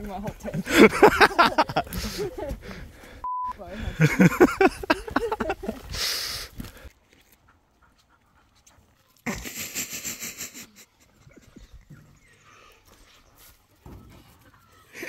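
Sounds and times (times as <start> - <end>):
dog panting: 7.0 - 9.5.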